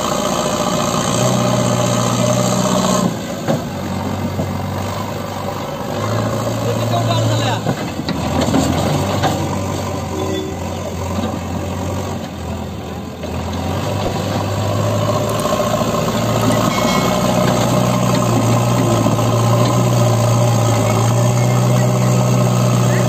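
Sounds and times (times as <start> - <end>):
diesel engine revving: 0.0 - 23.0
loader bucket pushing into soil: 7.6 - 12.6, 13.2 - 21.4.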